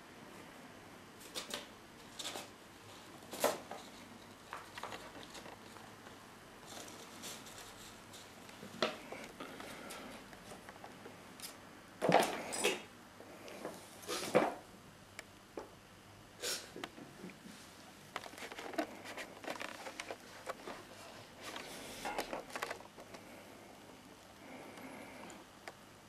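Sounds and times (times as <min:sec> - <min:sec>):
light crackly scratching: 0:02.2 - 0:09.3, 0:18.2 - 0:23.4
kitten rustling paper bag: 0:06.6 - 0:08.4, 0:18.2 - 0:23.0.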